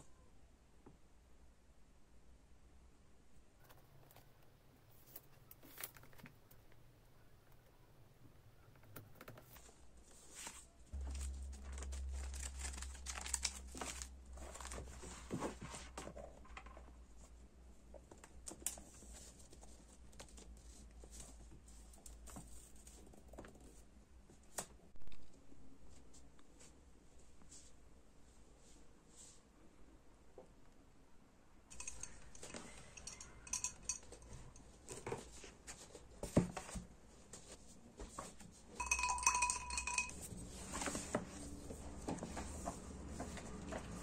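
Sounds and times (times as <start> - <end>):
notebook pages flipping: 9.2 - 16.2
paper rustling: 9.2 - 16.6
low hum: 10.9 - 15.3.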